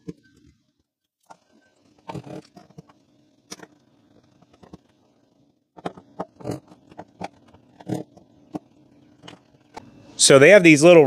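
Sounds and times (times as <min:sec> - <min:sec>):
plastic clicks and scrapes: 0:01.2 - 0:04.9, 0:05.8 - 0:09.8.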